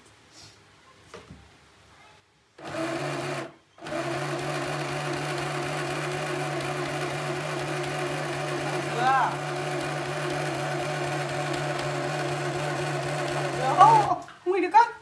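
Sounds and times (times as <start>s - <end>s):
sewing machine whirring: 2.6s - 14.2s.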